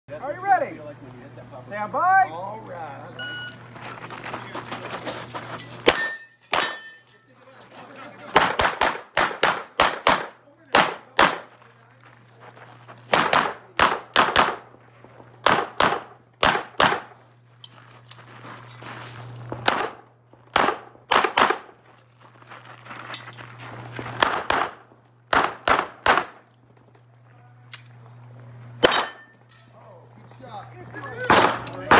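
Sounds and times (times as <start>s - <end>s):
steady low hum: 0.1s - 31.9s
handgun shots: 8.3s - 11.5s, 13.1s - 14.7s, 15.4s - 17.2s, 19.6s - 21.7s, 24.2s - 26.4s, 28.8s - 29.3s, 31.3s - 31.9s.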